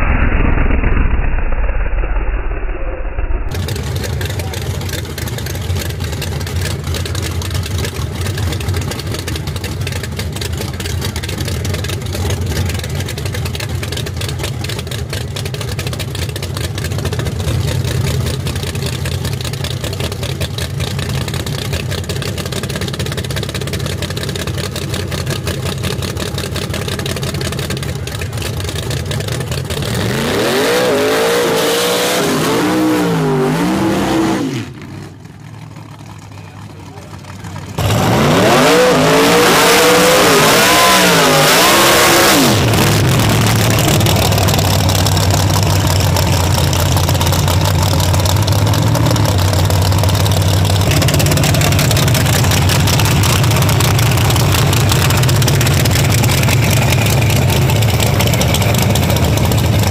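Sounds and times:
car engine idling: 3.5s - 59.9s
car engine revving hard: 29.7s - 34.8s, 37.8s - 59.9s.

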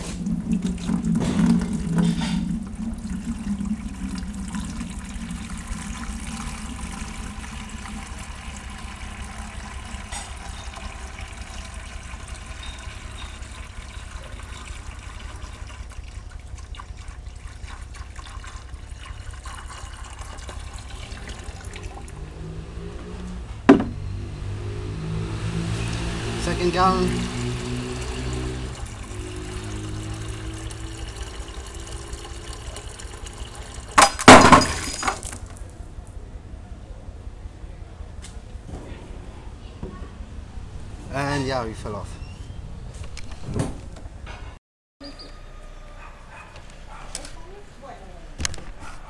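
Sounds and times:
water pouring into bucket: 0.0s - 22.2s, 25.8s - 35.5s
sharp knock: 23.7s - 24.0s.

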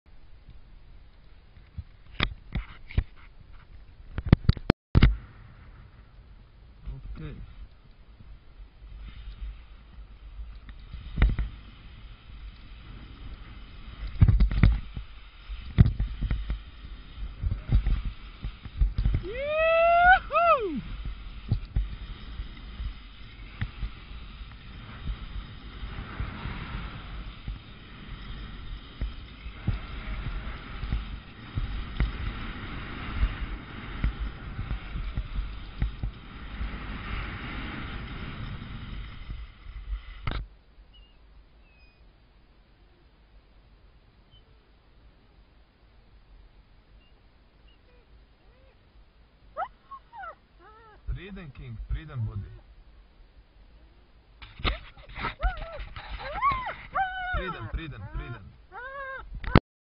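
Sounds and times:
hiss of moving air: 7.2s - 41.6s
skis turning on snow: 8.8s - 40.3s
wind buffeting microphone: 54.4s - 59.6s.

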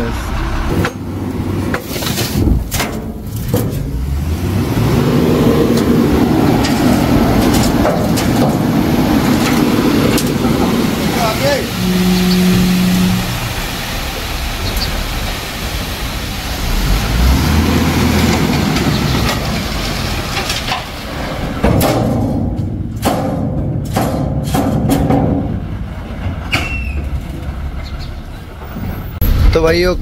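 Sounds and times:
diesel truck engine running: 0.0s - 30.0s
metal knocks and clanks: 0.7s - 4.3s, 5.6s - 13.9s, 18.2s - 29.6s
brief squeak: 11.8s - 13.2s, 26.5s - 27.1s.

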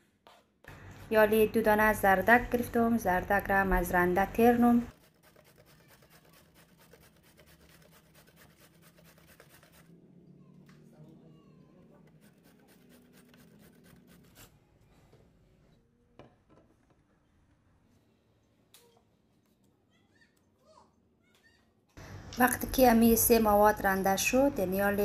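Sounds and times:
carrot grated on metal grater: 4.9s - 9.9s, 12.1s - 14.5s.

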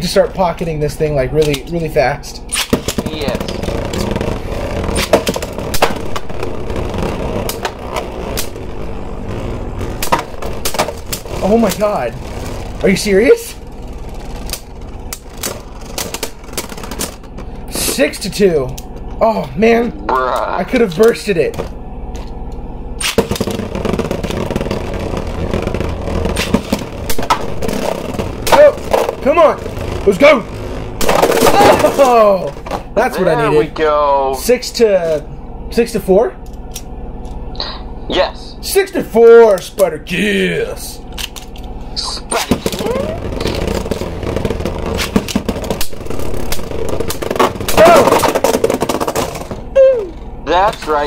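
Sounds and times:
spinning tops whirring on plastic: 2.5s - 18.0s, 21.0s - 32.9s, 41.1s - 50.3s.

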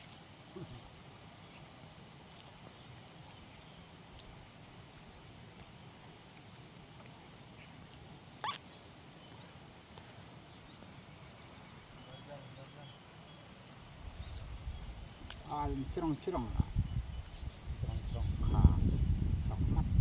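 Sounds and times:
insects droning: 0.0s - 20.0s
riverside hiss: 0.0s - 20.0s
short squeak: 8.4s - 8.6s.

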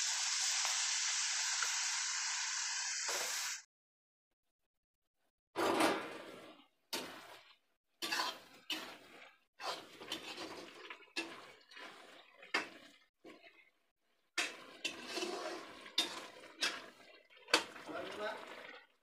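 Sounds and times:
metal spoon scraping a pan: 8.0s - 12.7s, 14.4s - 17.8s.

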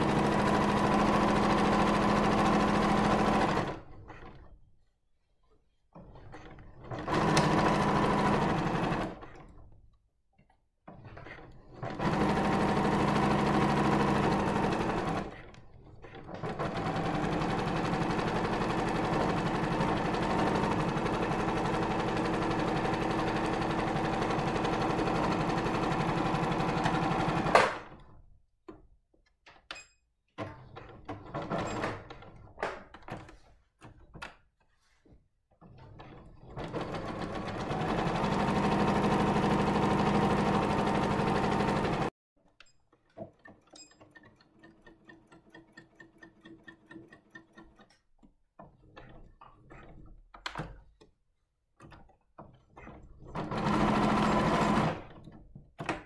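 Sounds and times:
sewing machine stitching: 0.0s - 4.6s, 5.9s - 9.8s, 10.8s - 28.2s, 30.4s - 32.8s, 35.6s - 42.1s, 51.8s - 56.0s.

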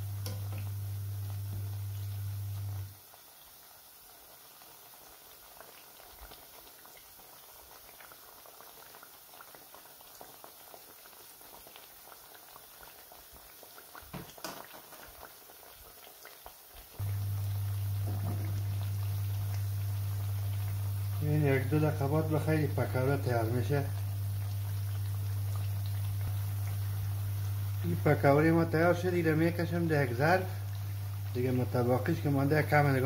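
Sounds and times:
food sizzling in hot oil: 0.0s - 33.0s
loud low hum: 17.0s - 21.2s.

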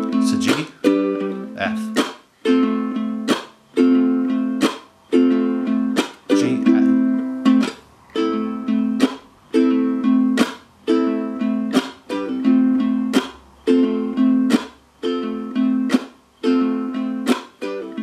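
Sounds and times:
ukulele plucked and strummed chords: 0.0s - 18.0s.

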